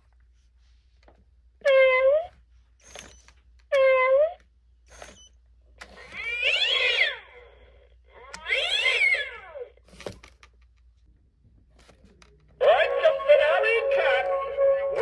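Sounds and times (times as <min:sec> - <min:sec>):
recorded cat yowls from toy: 0:06.0 - 0:07.3, 0:08.3 - 0:09.7.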